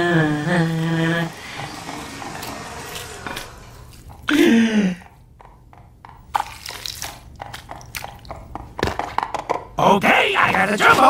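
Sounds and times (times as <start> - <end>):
person humming: 0.0 - 3.4.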